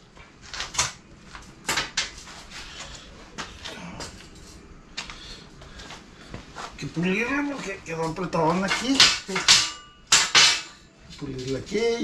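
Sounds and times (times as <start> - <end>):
metal frames clanking on concrete: 8.4 - 10.8.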